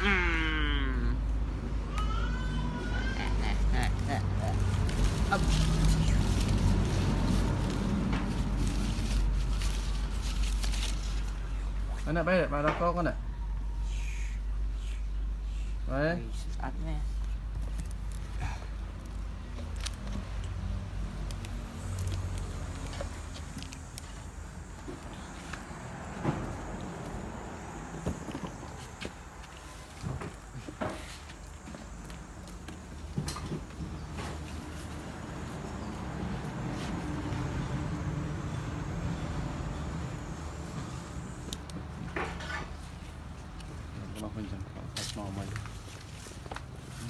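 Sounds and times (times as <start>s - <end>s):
engine humming: 0.0s - 11.9s, 17.2s - 44.6s
low motor hum: 31.9s - 41.9s.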